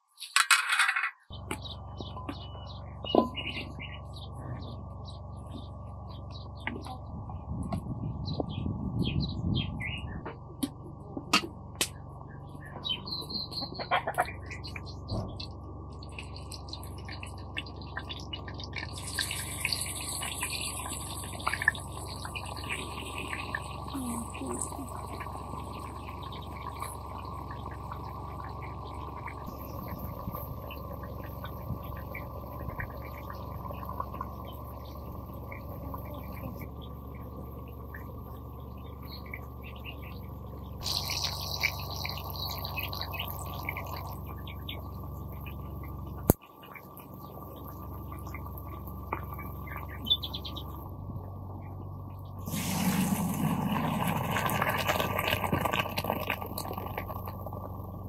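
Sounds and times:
birds chirping: 0:01.2 - 0:10.5, 0:11.9 - 0:53.0
water poured into metal colander: 0:52.5 - 0:57.3.

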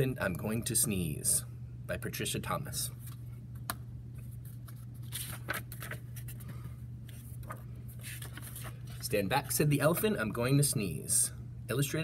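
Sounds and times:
steady low hum: 0:00.0 - 0:12.0
book pages rustling: 0:04.2 - 0:09.6.

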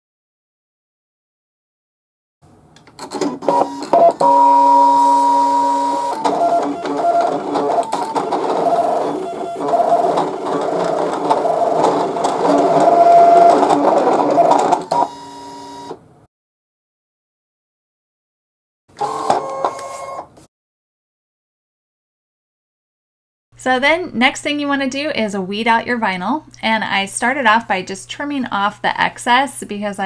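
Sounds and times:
cutting machine motors whirring: 0:03.2 - 0:16.0.

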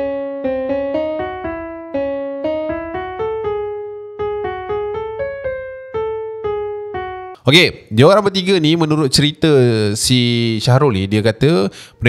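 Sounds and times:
piano-like keyboard melody: 0:00.0 - 0:09.4.

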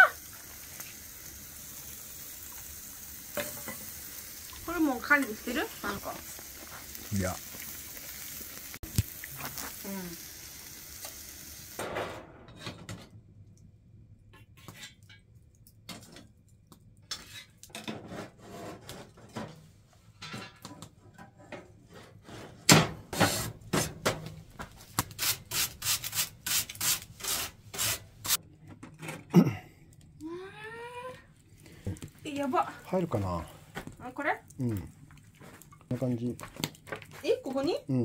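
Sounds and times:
metal tool scraping in wood stove: 0:17.1 - 0:19.6.

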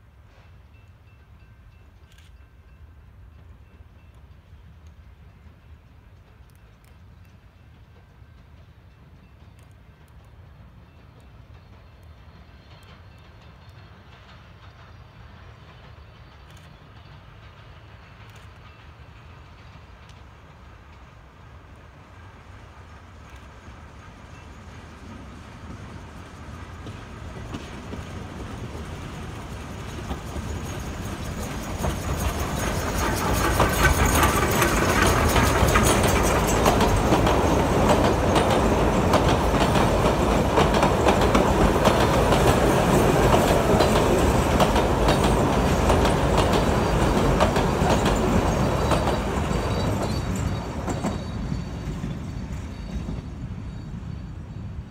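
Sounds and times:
steam train passing: 0:00.0 - 0:54.9
wheels clattering over rail joints: 0:25.7 - 0:53.2.

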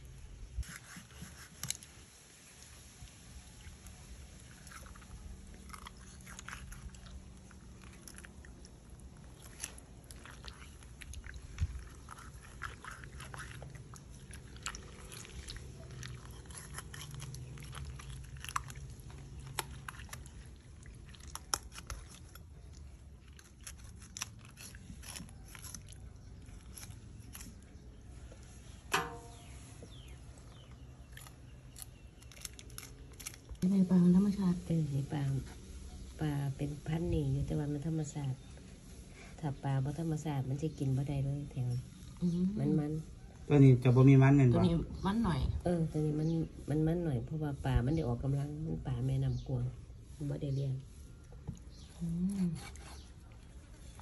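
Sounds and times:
knife cutting and scraping fish: 0:00.5 - 0:02.0, 0:04.5 - 0:33.6, 0:50.2 - 0:54.0.

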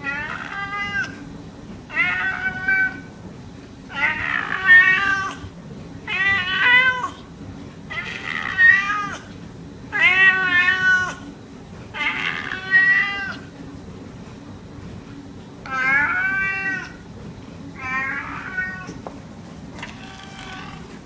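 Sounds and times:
cat meowing: 0:00.0 - 0:01.2, 0:01.9 - 0:03.1, 0:03.9 - 0:05.5, 0:06.1 - 0:07.2, 0:07.9 - 0:09.3, 0:09.9 - 0:11.3, 0:12.0 - 0:13.5, 0:15.7 - 0:17.0, 0:17.8 - 0:19.0, 0:19.8 - 0:21.0.

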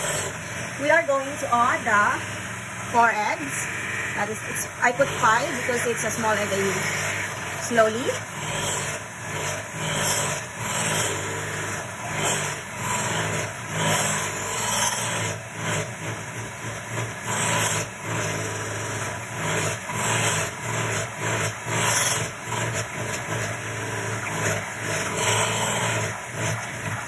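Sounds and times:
electric hand mixer humming: 0:00.0 - 0:27.0.

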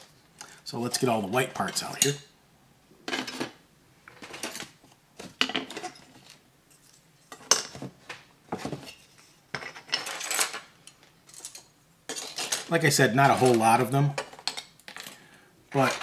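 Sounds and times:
plastic parts clattering: 0:03.1 - 0:07.9, 0:08.6 - 0:16.0.

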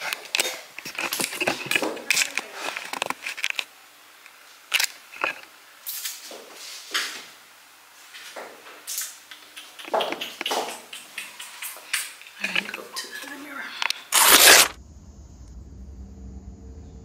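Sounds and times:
camera handling rustles: 0:13.8 - 0:14.8.

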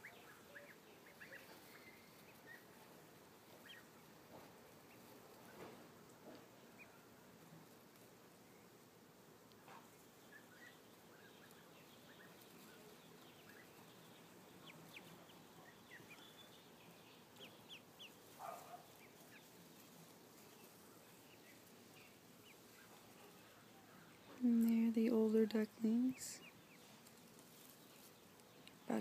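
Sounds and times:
ducklings peeping: 0:00.0 - 0:08.9, 0:09.6 - 0:29.0.

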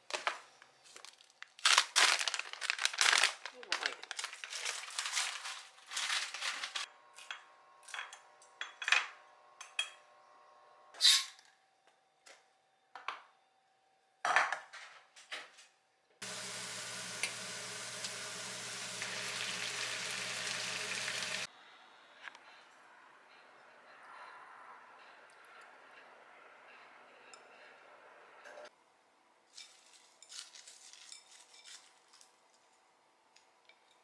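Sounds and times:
mushrooms sizzling in a frying pan: 0:16.2 - 0:21.5.

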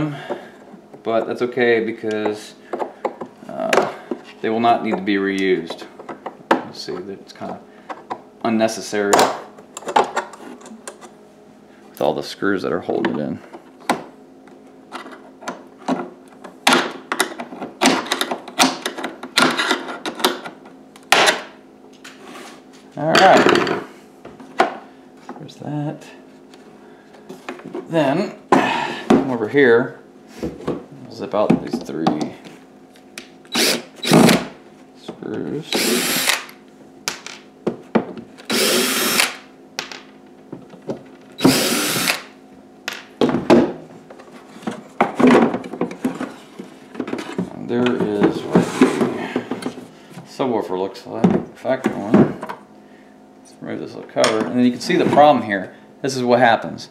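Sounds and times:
cordless drill spinning: 0:33.5 - 0:34.3, 0:35.7 - 0:36.5, 0:38.5 - 0:39.4, 0:41.4 - 0:42.3.

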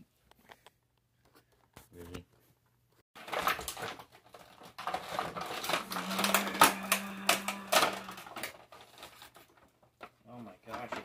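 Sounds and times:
plastic packaging crinkling: 0:03.2 - 0:09.8.

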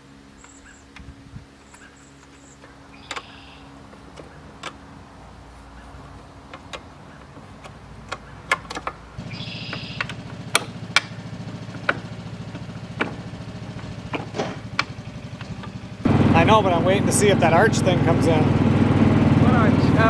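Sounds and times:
small engine running: 0:00.0 - 0:08.5, 0:09.2 - 0:20.0
sharp clicks and ticks: 0:05.9 - 0:14.1.

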